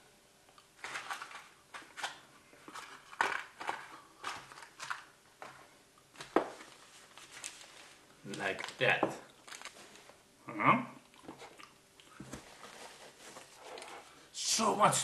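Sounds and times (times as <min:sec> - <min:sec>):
plastic packaging crinkling: 0:00.8 - 0:05.1, 0:06.2 - 0:10.2.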